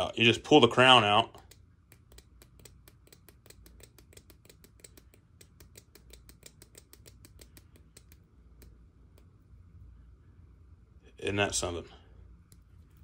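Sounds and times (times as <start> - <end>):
watch crown clicking: 1.4 - 9.2.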